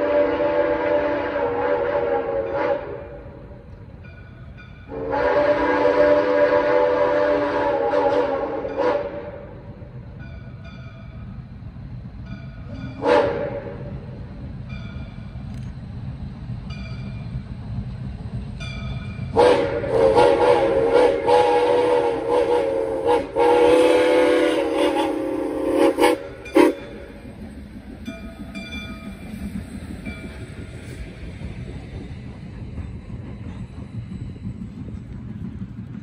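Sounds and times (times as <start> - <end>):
steam whistle: 0.0 - 3.3, 4.9 - 9.7, 13.0 - 14.0, 19.3 - 27.1
locomotive rumble: 0.0 - 36.0
steam hissing: 12.5 - 36.0.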